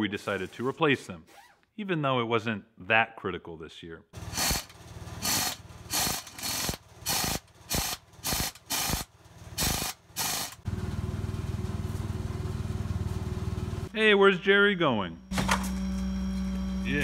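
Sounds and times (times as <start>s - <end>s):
cordless impact driver bursts: 4.3s - 10.6s.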